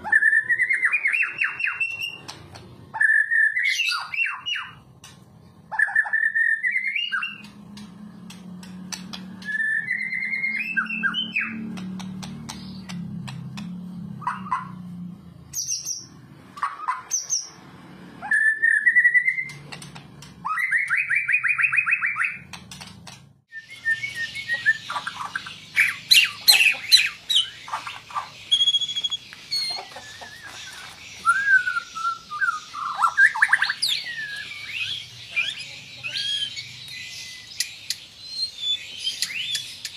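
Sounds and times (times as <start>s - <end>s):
songbird whistling and trilling: 0.0s - 4.8s, 5.7s - 7.6s, 9.3s - 11.8s, 18.2s - 19.7s, 20.4s - 22.5s, 23.5s - 39.9s.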